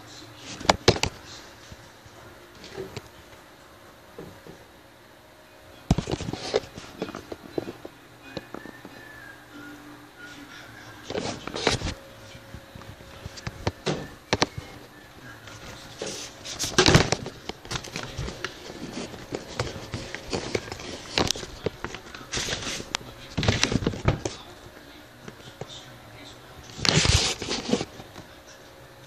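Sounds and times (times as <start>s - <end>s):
handling noise rustling and crackling: 11.0s - 25.8s.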